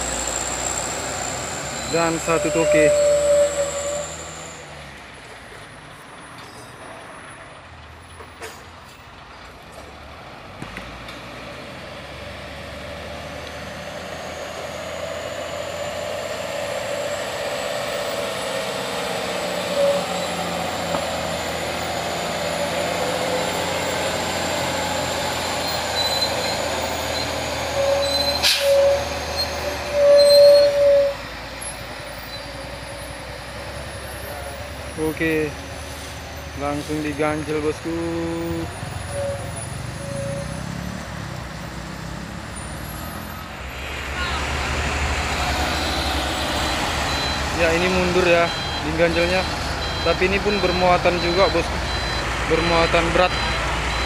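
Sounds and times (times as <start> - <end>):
short squealing tones: 0.0 - 4.8, 19.4 - 21.4, 25.3 - 33.3, 33.9 - 41.0
heavy truck engine and tyres: 0.0 - 54.0.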